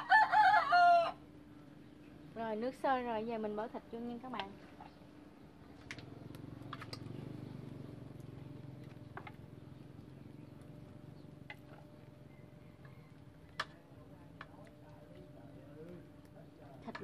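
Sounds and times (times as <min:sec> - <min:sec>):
pot boiling rumble: 0:00.0 - 0:17.0.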